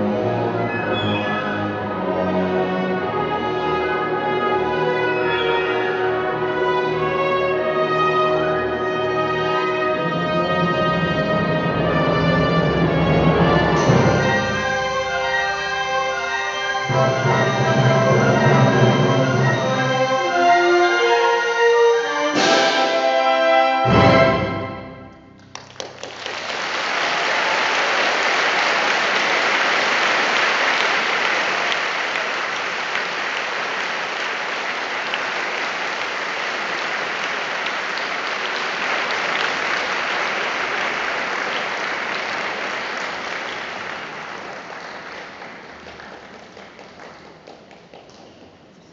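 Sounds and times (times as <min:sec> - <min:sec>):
audience applauding: 0:25.4 - 0:48.7.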